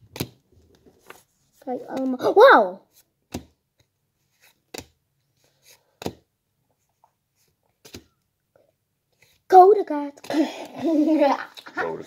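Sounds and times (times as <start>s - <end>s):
trading cards snapping: 0.1s - 0.4s.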